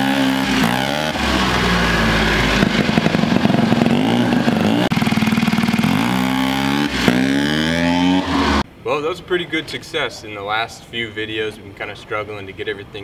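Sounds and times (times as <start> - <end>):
rotary engine revving: 0.0 - 8.6.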